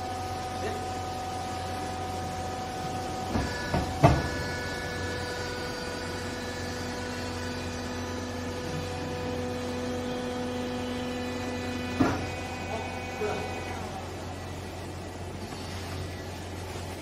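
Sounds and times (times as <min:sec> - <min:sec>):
hydraulic power unit humming: 0:00.0 - 0:17.0.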